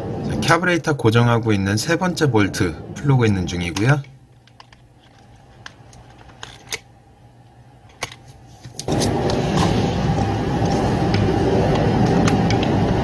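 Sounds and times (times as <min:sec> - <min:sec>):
loud steady machine noise: 0:08.9 - 0:13.0.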